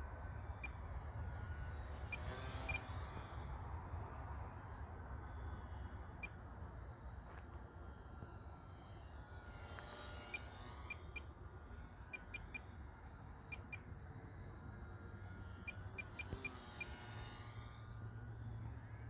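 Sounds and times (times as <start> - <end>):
high whine of electric motor: 0.0 - 19.0
sharp ticks: 13.4 - 13.9.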